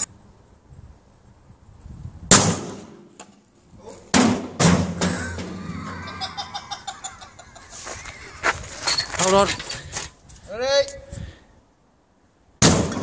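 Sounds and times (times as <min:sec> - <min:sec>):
sharp bangs: 0:02.3 - 0:03.1.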